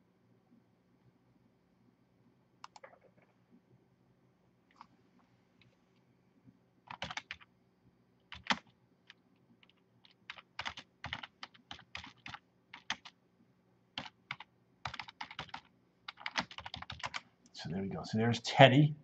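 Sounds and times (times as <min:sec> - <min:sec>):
typing on computer keyboard: 0:02.6 - 0:03.1, 0:06.9 - 0:07.5, 0:08.3 - 0:08.7, 0:09.6 - 0:13.2, 0:14.0 - 0:17.2.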